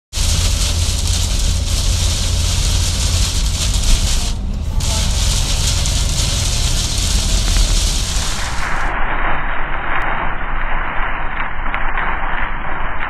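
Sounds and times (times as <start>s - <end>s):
loud rain hiss: 0.0s - 9.2s
low road rumble: 0.0s - 9.2s.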